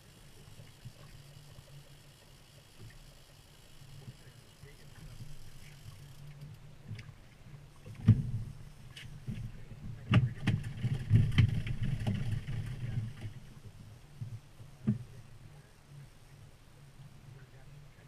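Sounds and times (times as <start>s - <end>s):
outboard motor running: 0.0s - 18.0s
sharp knocks and thumps: 7.9s - 8.5s.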